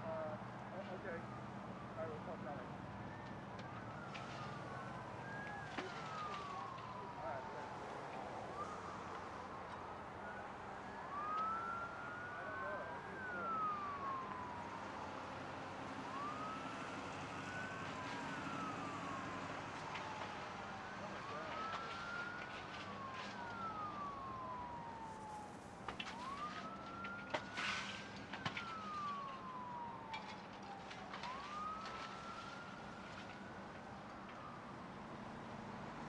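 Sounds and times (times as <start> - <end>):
emergency sirens wailing: 0.0 - 36.0.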